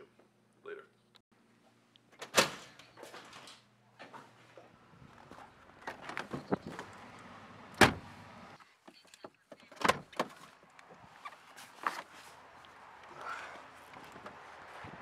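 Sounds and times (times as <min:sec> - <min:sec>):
truck door shutting: 0:07.7 - 0:08.2.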